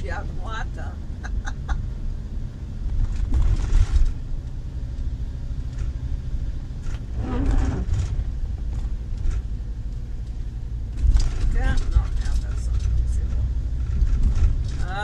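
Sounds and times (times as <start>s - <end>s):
engine and road drone: 0.0s - 15.0s.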